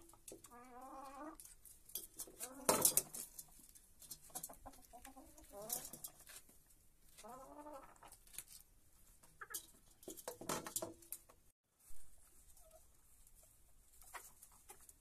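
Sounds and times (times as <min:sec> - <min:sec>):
hens clucking: 0:00.0 - 0:01.6, 0:02.2 - 0:06.2, 0:07.2 - 0:08.3, 0:09.2 - 0:09.8, 0:12.5 - 0:15.0.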